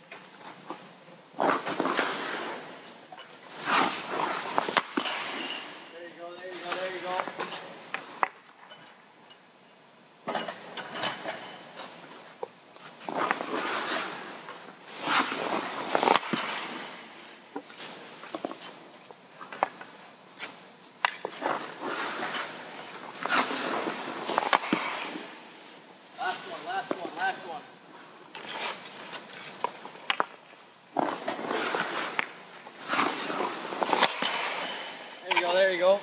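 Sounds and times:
skate blades scraping on ice: 0:01.3 - 0:02.8, 0:03.5 - 0:08.4, 0:12.9 - 0:18.8, 0:20.4 - 0:27.6, 0:28.4 - 0:36.0
hockey stick knocking puck: 0:03.7 - 0:05.5, 0:15.0 - 0:16.9, 0:21.0 - 0:22.4, 0:23.1 - 0:25.2, 0:28.4 - 0:30.4, 0:31.0 - 0:35.6.

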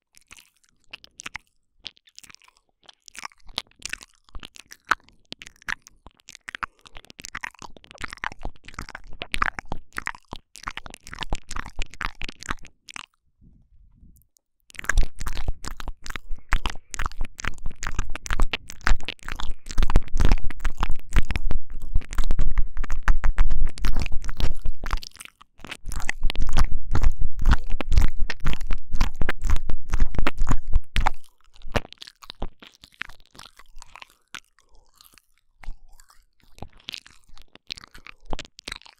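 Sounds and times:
wet mouth smacking and licking: 0:00.1 - 0:13.2, 0:14.2 - 0:38.9
deep rumble: 0:16.2 - 0:25.0, 0:25.9 - 0:31.8.

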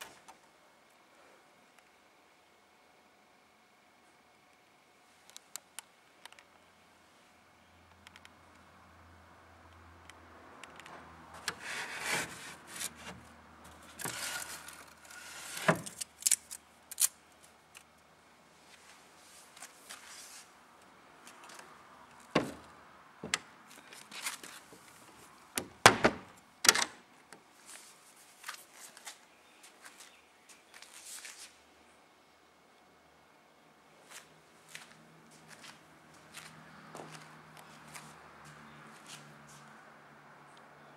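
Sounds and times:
rubbing and scraping on wood: 0:11.4 - 0:16.0
sharp wooden knocks and clicks: 0:25.6 - 0:26.9.

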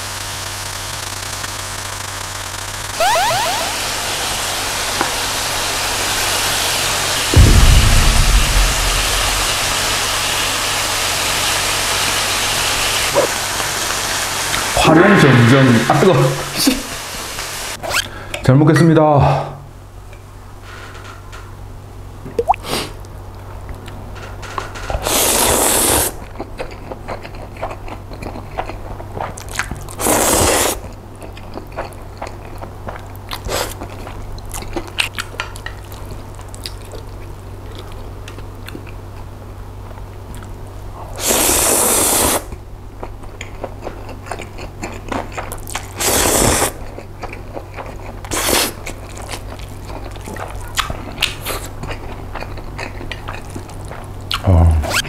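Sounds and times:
dull low thump: 0:07.4 - 0:10.2
wet chewing: 0:43.0 - 0:54.4.

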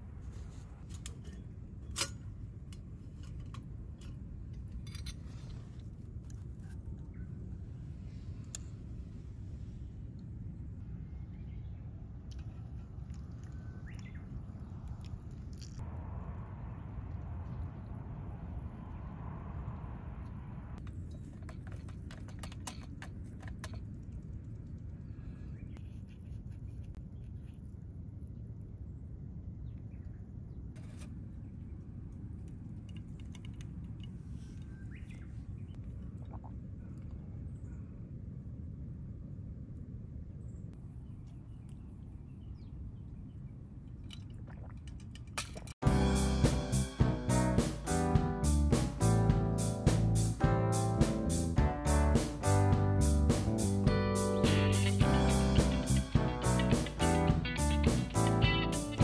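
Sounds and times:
low steady rumble: 0:00.0 - 0:59.0
low rumble: 0:14.5 - 0:21.0, 0:45.8 - 0:59.0.

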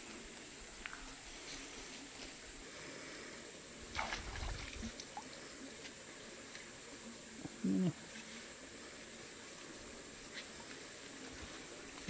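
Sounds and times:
faint running stream water: 0:00.0 - 0:12.0
water splashing swish: 0:03.9 - 0:05.0.

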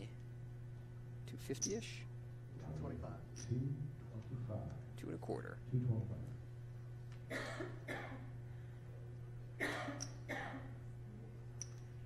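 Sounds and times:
steady low hum: 0:00.0 - 0:12.0
person coughing: 0:07.3 - 0:08.3, 0:09.6 - 0:10.8.

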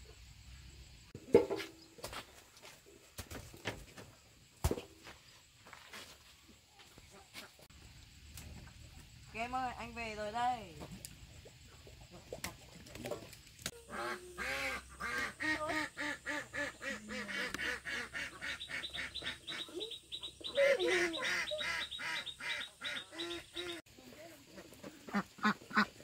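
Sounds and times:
poultry calling: 0:13.8 - 0:23.8.

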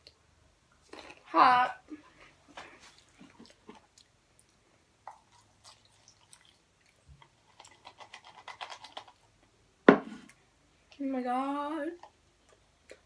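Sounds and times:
chewing crunchy chips: 0:00.8 - 0:01.3, 0:07.3 - 0:09.2.

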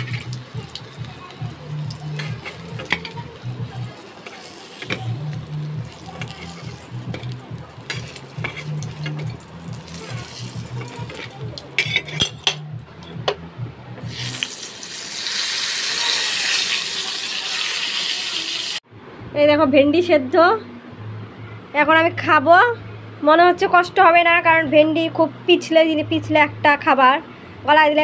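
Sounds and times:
hot oil sizzling: 0:00.0 - 0:12.3, 0:14.0 - 0:18.8
low background music: 0:00.0 - 0:14.7
metal spatula scraping a wok: 0:02.2 - 0:12.6.

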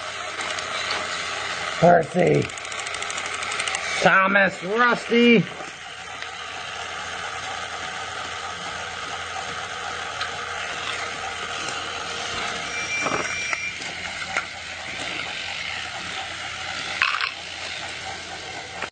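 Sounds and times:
toy train motor whir: 0:00.0 - 0:18.9
toy train rattle: 0:00.0 - 0:18.9
track clicks: 0:00.3 - 0:18.9
high beep: 0:12.6 - 0:13.9.

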